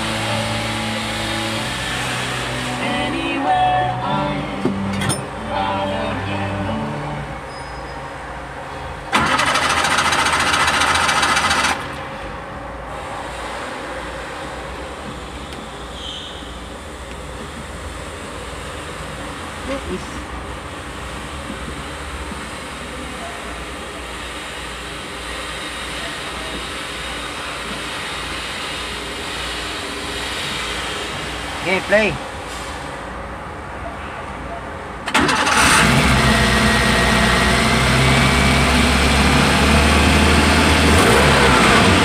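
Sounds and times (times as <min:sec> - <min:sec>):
vehicle engine running: 0:00.0 - 0:07.4, 0:35.5 - 0:42.0
starter motor cranking engine: 0:09.1 - 0:11.9, 0:35.1 - 0:42.0
engine rumble: 0:35.0 - 0:42.0.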